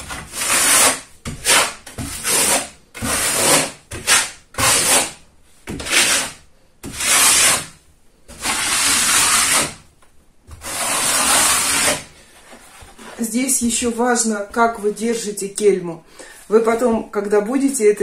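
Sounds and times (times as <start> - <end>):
trowel scraping plaster on wall: 0.0 - 9.9, 10.5 - 13.9.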